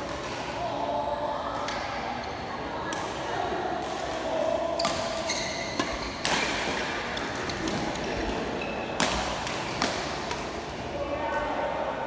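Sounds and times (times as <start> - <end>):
rackets hitting shuttlecock: 3.8 - 10.8
shoes squeaking on court floor: 4.8 - 6.5, 7.4 - 9.0.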